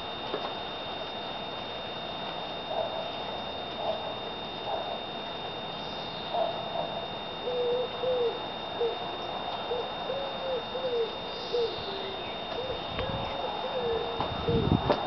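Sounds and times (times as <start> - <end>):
pigeon cooing: 6.3 - 9.0, 9.6 - 14.7.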